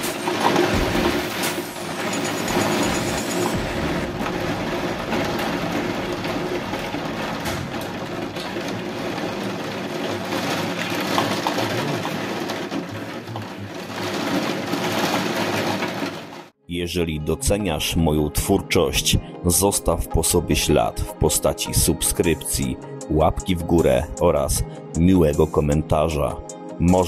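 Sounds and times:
heavy rain pouring: 0:00.0 - 0:16.6.

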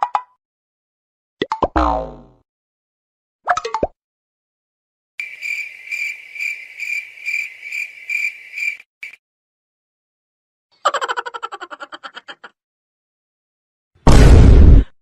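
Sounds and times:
cricket chirping: 0:05.2 - 0:09.2.

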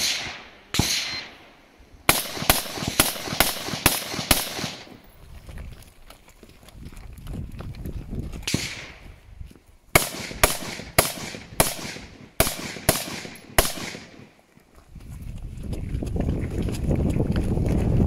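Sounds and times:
echoing gunshots: 0:00.0 - 0:05.0, 0:08.5 - 0:09.0, 0:09.9 - 0:14.4
running footsteps on gravel: 0:04.6 - 0:10.0, 0:14.0 - 0:18.0.

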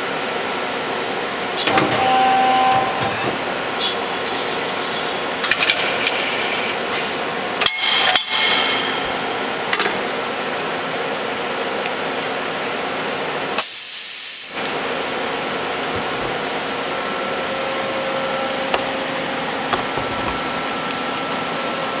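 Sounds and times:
machine hum: 0:14.6 - 0:22.0.

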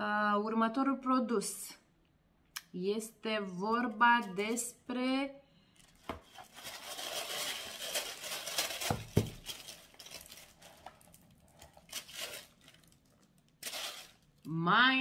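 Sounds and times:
packaging rustling and crinkling: 0:05.8 - 0:14.5.

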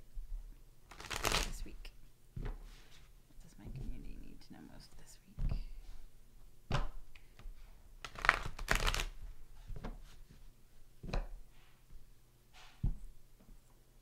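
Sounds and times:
cards being shuffled: 0:00.9 - 0:01.8, 0:08.0 - 0:09.2
cards tapping and sliding: 0:08.0 - 0:09.1.

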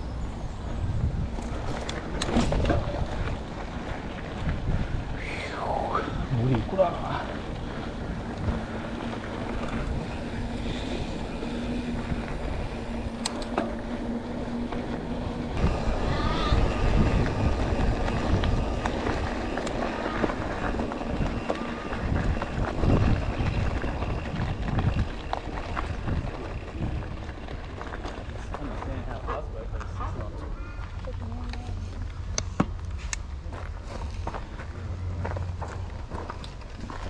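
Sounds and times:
steady hum: 0:00.0 - 0:27.9
wind buffeting microphone: 0:00.0 - 0:32.4
bike tyres rolling on dirt: 0:00.0 - 0:37.0
bike rattling over bumps: 0:00.2 - 0:05.2, 0:06.0 - 0:32.9, 0:33.5 - 0:37.0.

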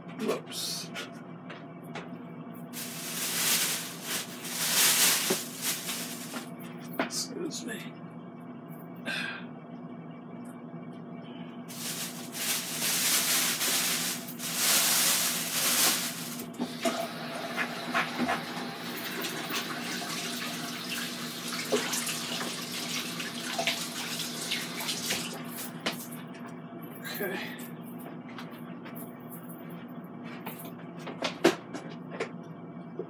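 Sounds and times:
faucet water running: 0:16.7 - 0:25.5.

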